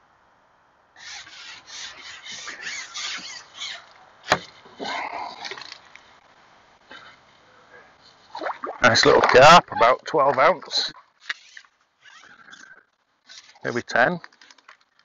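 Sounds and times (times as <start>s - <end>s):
fishing pole rubbing rasps: 1.0s - 4.0s, 11.2s - 13.8s.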